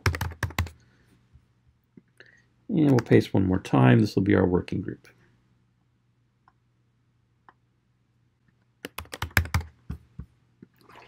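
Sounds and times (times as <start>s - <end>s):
typing on keyboard: 0.0s - 0.8s, 2.8s - 3.2s, 8.8s - 9.8s.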